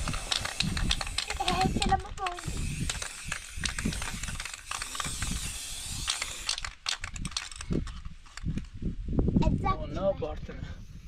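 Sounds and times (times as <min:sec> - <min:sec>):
spray paint can hissing: 0:00.0 - 0:07.6
quick rattling clicks: 0:00.0 - 0:08.7.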